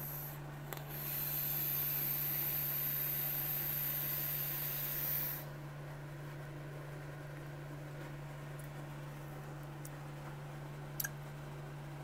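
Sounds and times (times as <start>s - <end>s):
hiss of air through atomizer: 0.0s - 5.5s.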